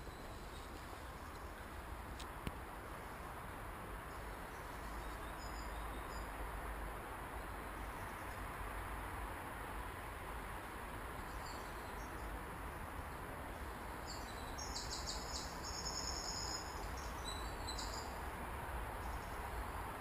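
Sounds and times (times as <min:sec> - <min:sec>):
insect chirping: 0:04.1 - 0:06.3, 0:13.9 - 0:18.2.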